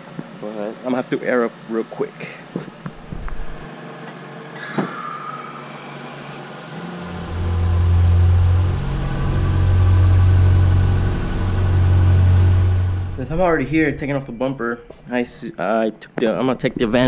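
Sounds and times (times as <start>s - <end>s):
air compressor droning: 4.5s - 15.3s.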